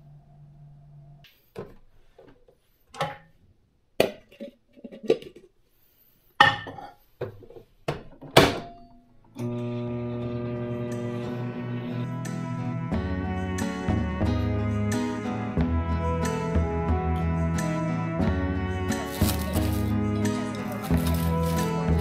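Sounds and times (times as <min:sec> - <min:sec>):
background music: 0:10.0 - 0:22.0.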